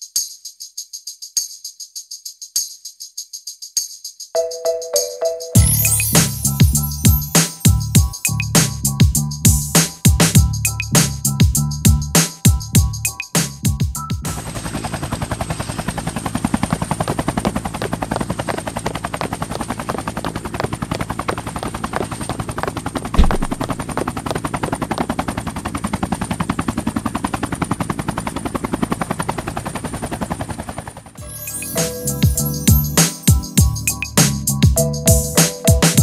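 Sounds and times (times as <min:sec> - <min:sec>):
helicopter rotor blades chopping: 0:14.5 - 0:31.1
heavy thump: 0:23.2 - 0:23.7.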